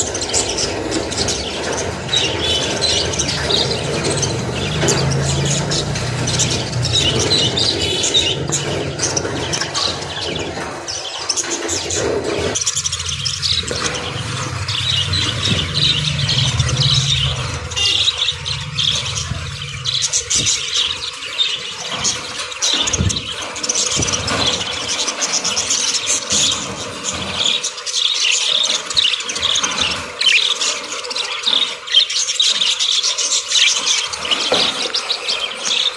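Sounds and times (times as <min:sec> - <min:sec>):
budgerigars chirping and chattering: 0:00.0 - 0:35.9
low hum: 0:12.4 - 0:21.1.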